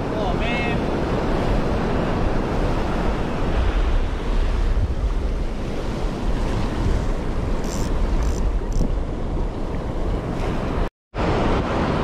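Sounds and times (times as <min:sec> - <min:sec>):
ocean surf on beach: 0:00.0 - 0:12.0
wind buffeting microphone: 0:00.0 - 0:12.0.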